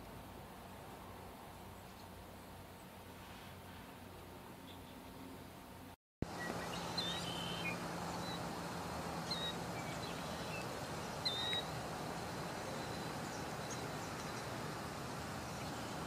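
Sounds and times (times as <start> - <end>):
outdoor background noise: 0.0 - 16.0
bird chirps: 6.3 - 8.6, 9.2 - 16.0.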